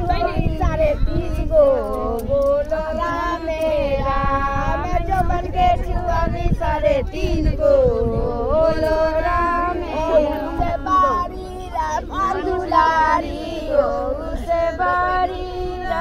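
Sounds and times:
low rumble of wind: 0:00.0 - 0:16.0
women singing unaccompanied: 0:00.0 - 0:16.0.

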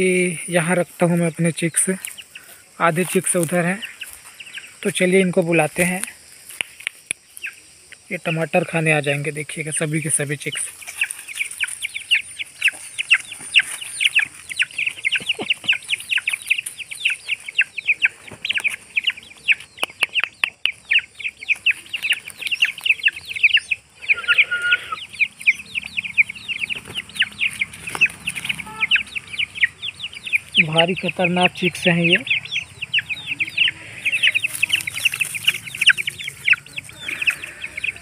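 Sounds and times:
chicks peeping: 0:00.0 - 0:38.0.

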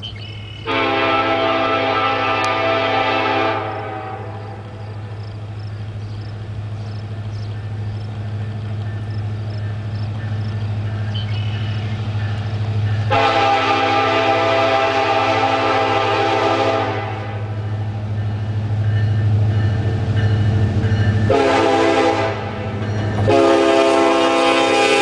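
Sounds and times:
locomotive engine rumble: 0:00.0 - 0:25.0
locomotive air horn: 0:00.7 - 0:04.6, 0:13.1 - 0:17.6, 0:21.3 - 0:25.0.

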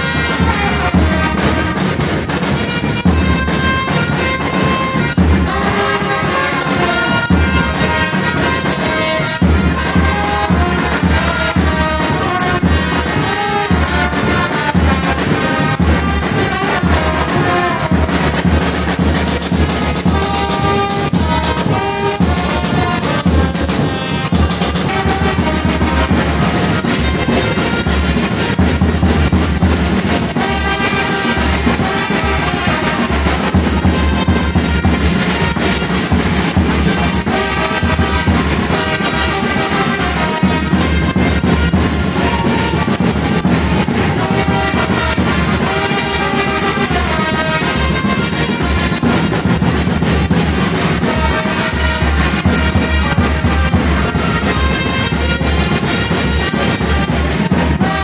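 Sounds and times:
bass drum beat: 0:00.0 - 0:47.2
trumpets playing tune: 0:00.0 - 0:58.0.

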